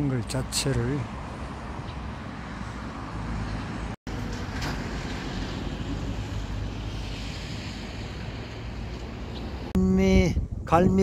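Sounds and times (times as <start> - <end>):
wind noise on microphone: 4.3 - 11.0.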